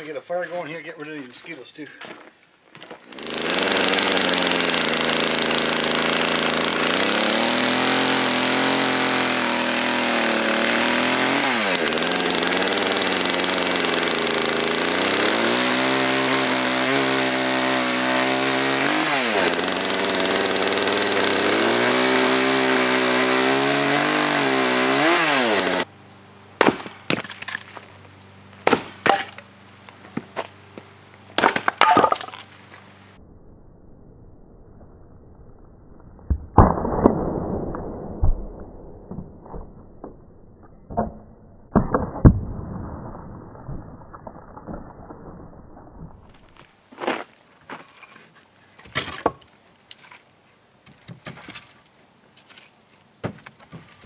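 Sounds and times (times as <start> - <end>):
chainsaw cutting log: 2.9 - 25.9, 28.6 - 29.5, 31.4 - 32.4.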